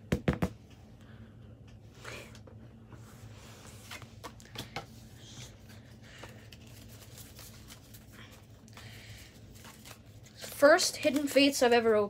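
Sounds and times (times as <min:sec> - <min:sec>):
low electrical hum: 0:00.0 - 0:12.0
hands handling cards and packaging: 0:03.7 - 0:11.8.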